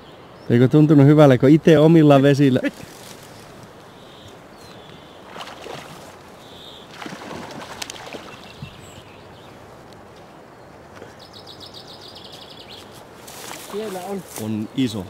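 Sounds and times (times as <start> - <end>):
rustling: 2.6 - 4.1, 12.7 - 14.6
faint bird chirp: 3.2 - 5.4, 6.4 - 7.0, 10.5 - 13.0
water splashing: 5.0 - 9.0, 13.4 - 14.3.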